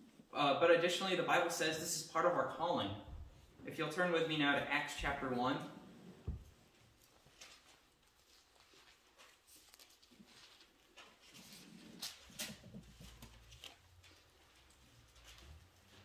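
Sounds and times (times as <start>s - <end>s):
pages being turned: 7.0s - 14.8s.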